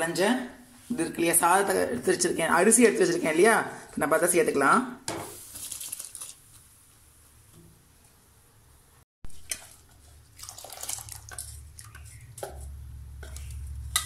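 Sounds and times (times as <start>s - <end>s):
rice splashing into boiling liquid: 9.3s - 12.6s.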